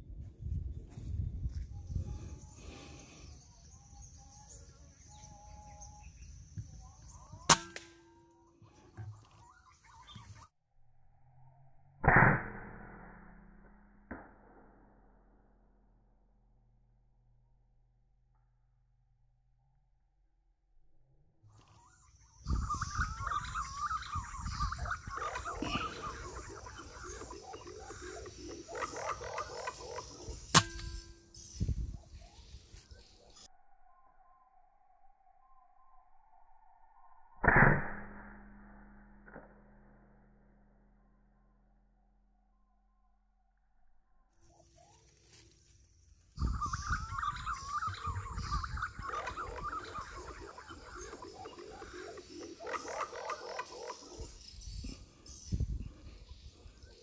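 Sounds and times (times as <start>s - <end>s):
birds calling and chirping: 0.7s - 10.5s, 21.5s - 33.5s, 44.4s - 57.0s.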